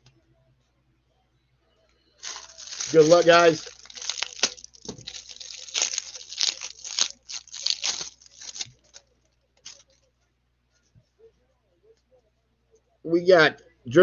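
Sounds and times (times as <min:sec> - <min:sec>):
wrapper tearing and crinkling: 0:02.2 - 0:09.0, 0:09.6 - 0:09.9.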